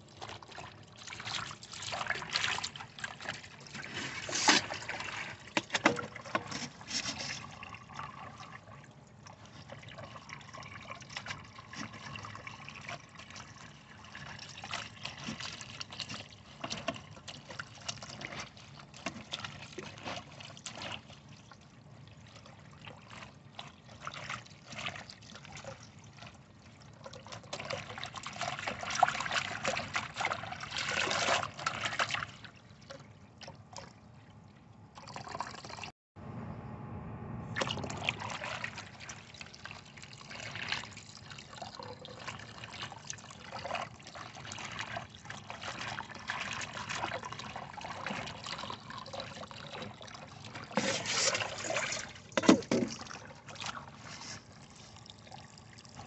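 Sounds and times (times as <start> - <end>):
tap water running into basin: 37.6 - 53.8.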